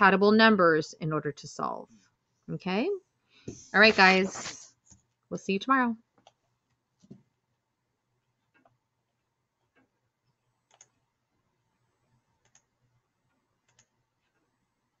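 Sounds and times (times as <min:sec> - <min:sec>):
computer mouse clicks: 0:10.6 - 0:11.0, 0:12.4 - 0:12.7, 0:13.6 - 0:14.4.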